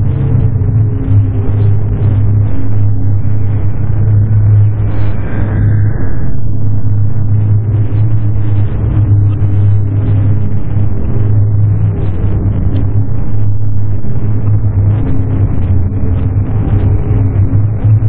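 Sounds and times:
distorted noise rumble: 0.0s - 18.0s
low drone: 0.0s - 18.0s.

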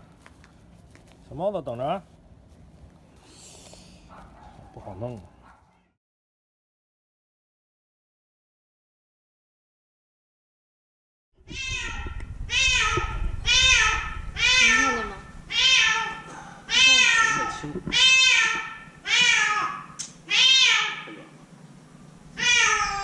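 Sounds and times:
cat meowing: 11.4s - 21.3s, 22.4s - 23.0s.

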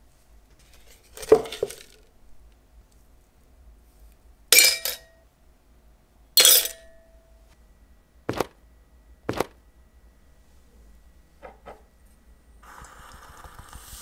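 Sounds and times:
metal clinking against glass: 4.6s - 5.1s, 6.4s - 6.9s.

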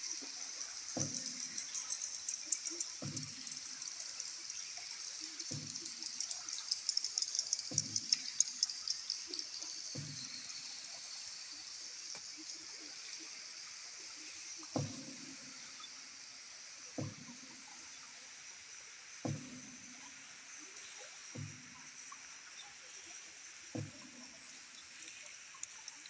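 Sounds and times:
high chirping and clicking: 0.6s - 11.2s.

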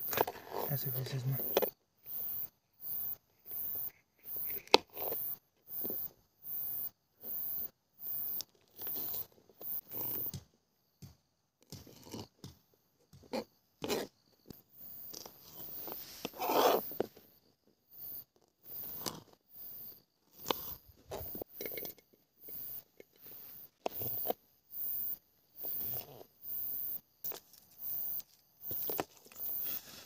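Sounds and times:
knife cutting bell pepper: 11.7s - 14.1s
scraping rustle: 29.0s - 30.0s.

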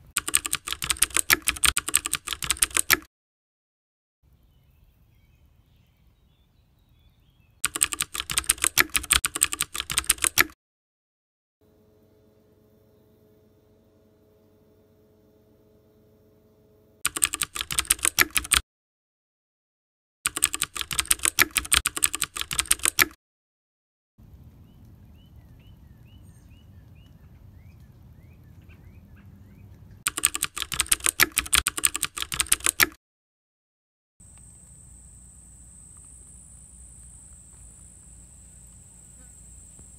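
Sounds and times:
soft outdoor background: 0.0s - 3.0s, 4.2s - 10.5s, 11.6s - 18.6s, 20.3s - 23.1s, 24.2s - 32.8s, 34.2s - 39.9s
computer keyboard typing: 0.1s - 3.1s, 7.6s - 10.6s, 17.0s - 18.6s, 20.3s - 23.2s, 30.1s - 33.0s.

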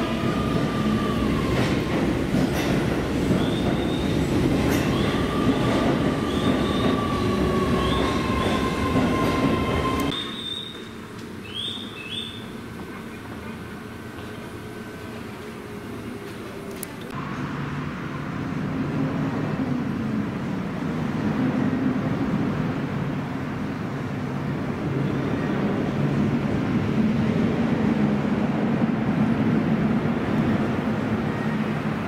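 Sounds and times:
electric train rumbling: 0.0s - 32.0s
train wheels squealing: 3.3s - 12.5s, 31.2s - 31.8s.

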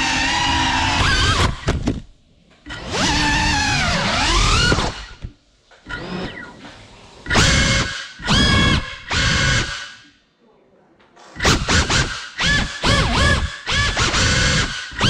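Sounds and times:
drone motors whining: 0.0s - 1.7s, 2.6s - 10.1s, 11.4s - 15.0s.

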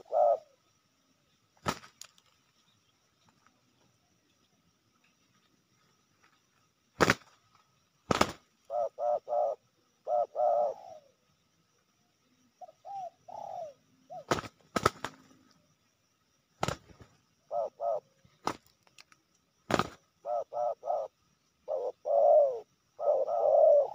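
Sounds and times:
doves cooing: 0.0s - 0.6s, 8.1s - 11.3s, 12.6s - 15.6s, 16.6s - 18.7s, 19.7s - 23.9s
wing slaps: 1.6s - 2.4s, 7.0s - 8.5s, 14.2s - 15.4s, 16.6s - 17.2s, 18.4s - 20.0s.

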